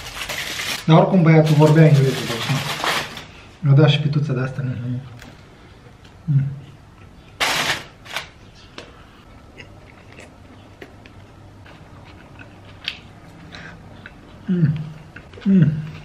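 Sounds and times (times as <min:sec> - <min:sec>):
chewing: 0:09.5 - 0:16.0.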